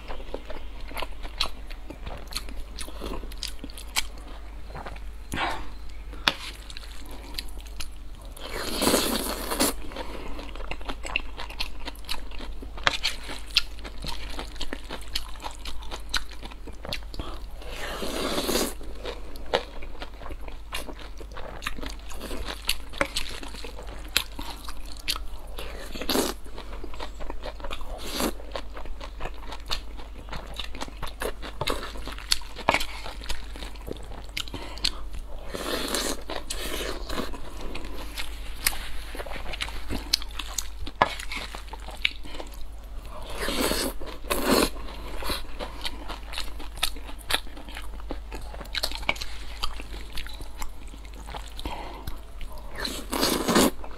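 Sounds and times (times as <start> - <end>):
chewing with wet mouth clicks: 43.3 - 53.9.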